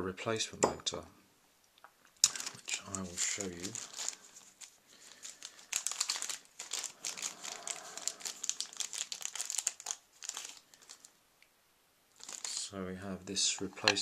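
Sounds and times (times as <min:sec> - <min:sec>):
packaging crinkling and rustling: 0:02.2 - 0:11.2, 0:12.2 - 0:12.7.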